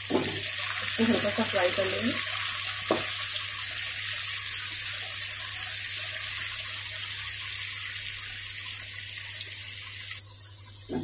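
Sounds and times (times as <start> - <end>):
onions sizzling in hot oil: 0.0 - 11.0.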